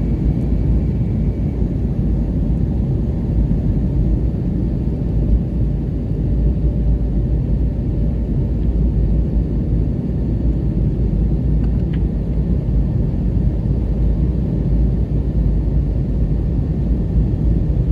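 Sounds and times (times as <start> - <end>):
jet engine rumble: 0.0 - 17.9.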